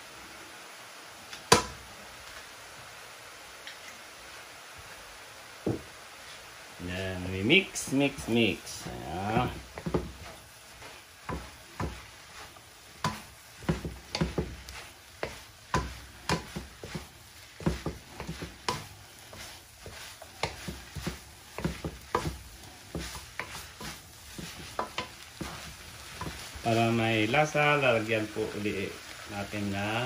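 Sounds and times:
faint sizzle: 0.0s - 30.0s
spatula scraping a skillet: 7.8s - 30.0s.

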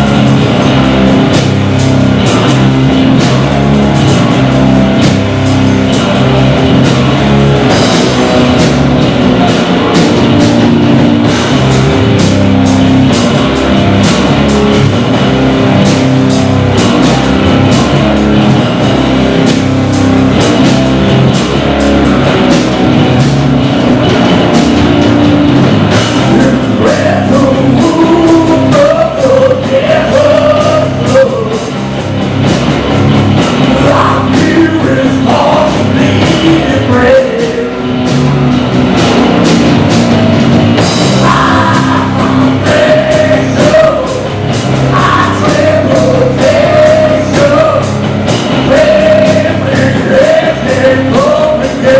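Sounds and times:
rock band playing: 0.0s - 51.9s
vocalist singing: 26.2s - 31.8s, 33.7s - 37.9s, 41.1s - 51.9s
drum hits: 38.0s - 51.9s.

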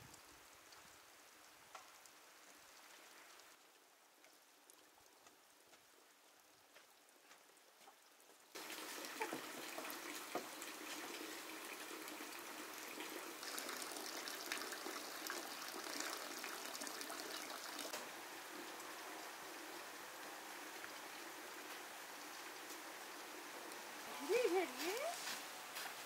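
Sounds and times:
water hissing: 8.6s - 18.2s, 23.3s - 26.0s.

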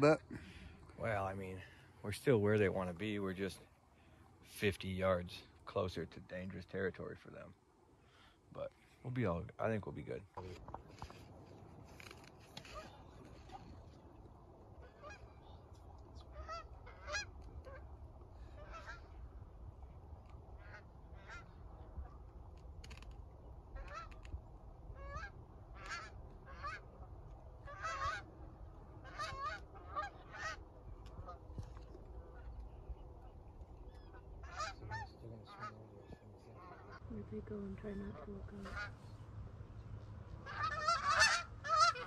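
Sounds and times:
low wind rumble: 0.0s - 42.0s
geese honking: 14.8s - 19.2s, 20.5s - 22.2s, 25.0s - 32.6s, 33.8s - 37.1s, 37.7s - 39.2s, 40.3s - 42.0s.

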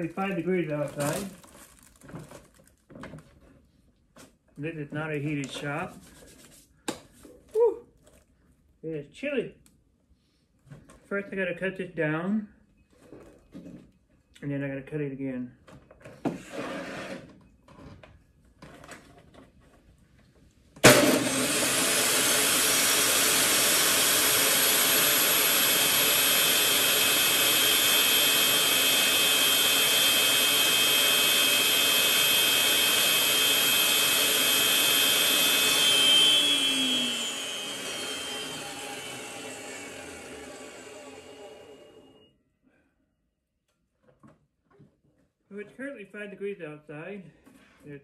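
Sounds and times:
electric tool motor whining: 20.8s - 42.3s.

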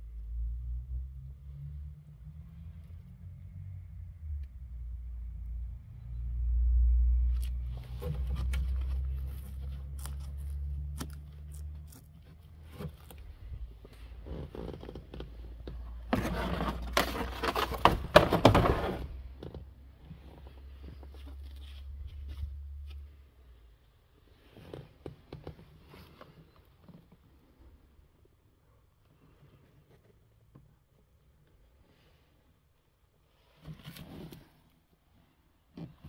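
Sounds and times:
scraping and rustling: 7.4s - 23.2s.

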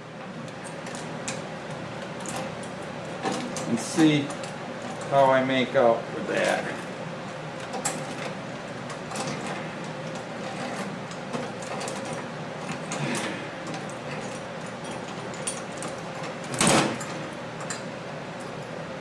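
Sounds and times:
metal parts clicking and rattling: 7.6s - 18.7s.

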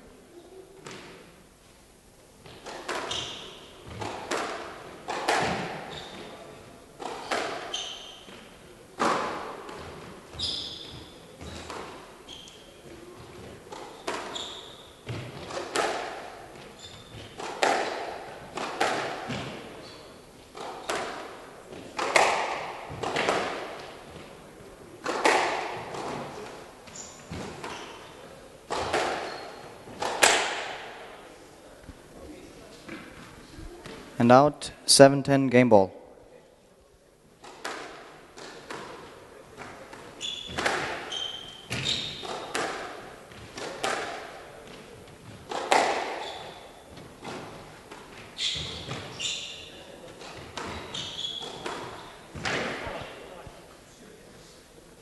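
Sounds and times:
shoes squeaking on wooden floor: 2.4s - 4.2s, 5.4s - 8.4s, 9.7s - 15.6s, 16.5s - 17.5s, 18.8s - 21.1s, 25.8s - 30.2s, 40.0s - 42.7s, 44.6s - 53.2s
squash ball hits echoing: 2.4s - 6.4s, 7.0s - 12.0s, 13.2s - 24.2s, 25.0s - 26.6s, 28.7s - 31.3s, 37.4s - 53.2s.

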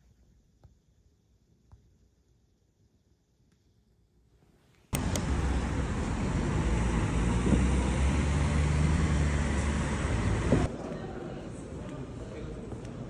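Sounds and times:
road traffic rumble: 5.0s - 13.0s.

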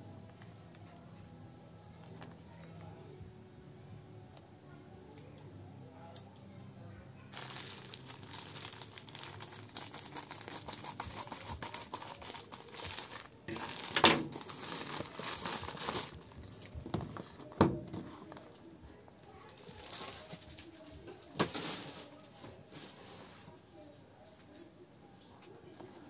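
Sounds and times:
plastic bag ripping: 7.3s - 16.8s, 19.5s - 20.7s
plastic mailer bag crinkling: 7.3s - 16.8s, 19.4s - 20.8s.

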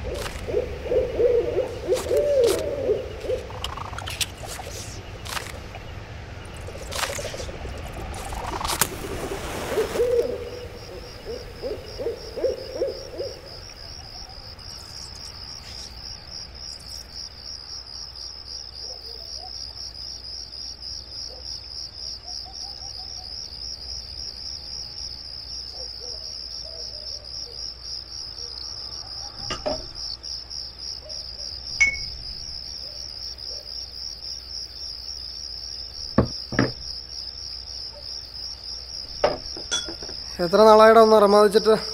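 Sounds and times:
low hooting call: 0.0s - 5.0s, 6.5s - 15.8s
crickets trilling: 0.0s - 41.9s.

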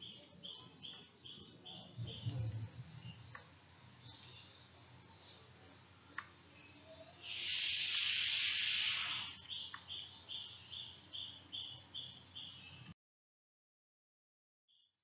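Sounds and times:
bird chirping: 0.0s - 12.9s
hiss: 7.2s - 9.5s.

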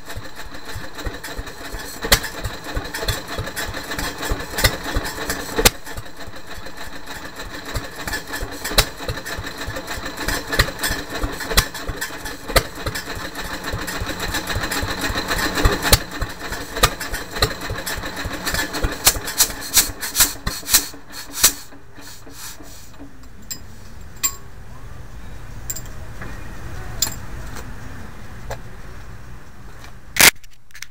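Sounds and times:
stationary engine firing and clattering: 0.0s - 23.1s
engine clicks: 0.0s - 23.6s.

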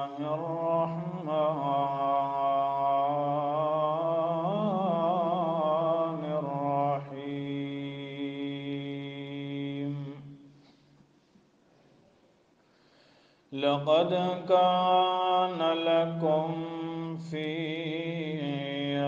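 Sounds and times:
man chanting melodically: 0.0s - 10.5s, 13.6s - 19.0s.

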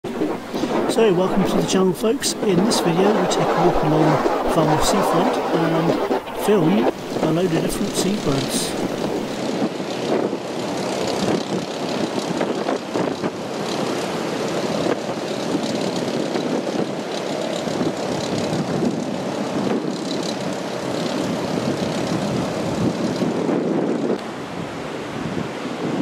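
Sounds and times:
surf rushing: 0.0s - 9.6s
wind buffeting microphone: 0.0s - 13.6s, 14.6s - 26.0s
storm wind: 0.0s - 26.0s.

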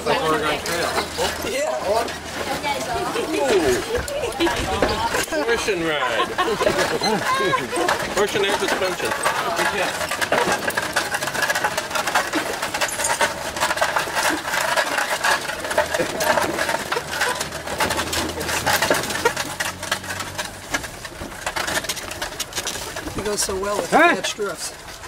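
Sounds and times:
wooden cart rattling over dirt track: 0.0s - 25.0s.

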